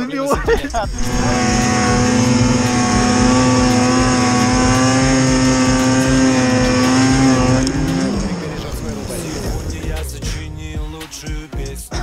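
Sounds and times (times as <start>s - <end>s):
snowmobile engine at high revs: 0.8s - 10.2s.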